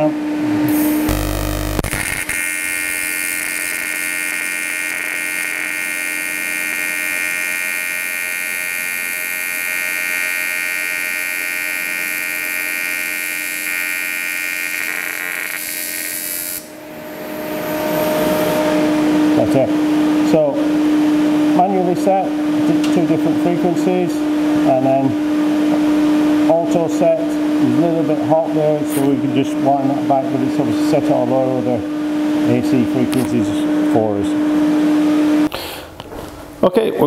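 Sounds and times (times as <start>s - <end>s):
welding arc buzzing: 0.7s - 18.7s.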